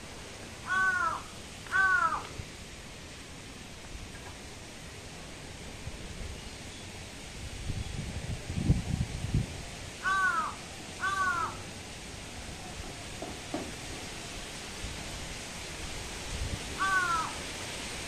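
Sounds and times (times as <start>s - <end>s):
bird calling: 0.6s - 2.3s, 10.0s - 11.6s, 16.8s - 17.5s.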